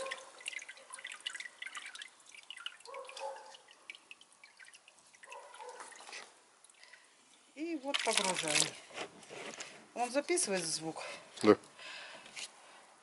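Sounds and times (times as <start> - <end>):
water dripping: 0.0 - 8.8.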